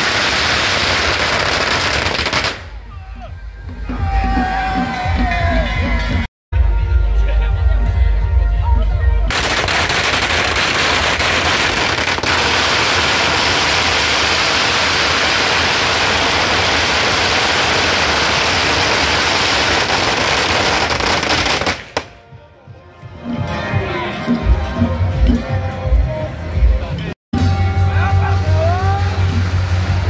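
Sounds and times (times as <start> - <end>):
firecrackers crackling: 0.0 - 2.8, 9.3 - 22.2.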